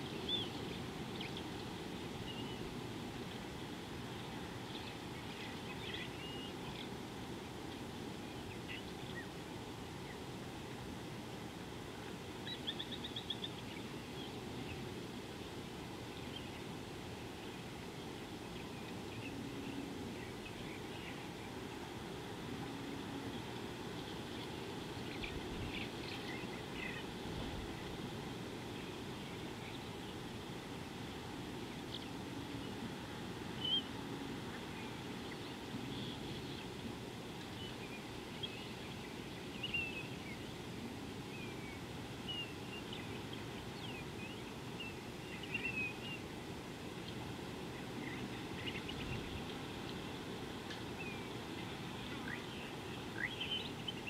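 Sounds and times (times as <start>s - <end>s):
birds chirping: 31.6s - 46.4s, 47.0s - 54.0s.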